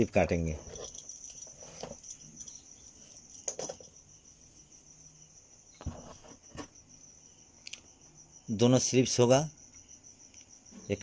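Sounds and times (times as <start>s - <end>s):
cricket chirring: 0.0s - 11.0s.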